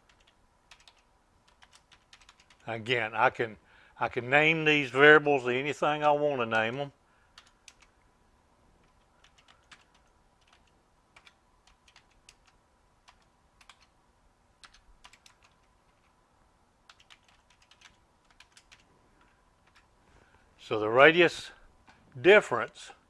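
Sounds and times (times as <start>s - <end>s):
keyboard typing clicks: 0.0s - 2.6s, 7.4s - 8.0s, 8.8s - 13.9s, 14.6s - 16.2s, 16.9s - 19.9s.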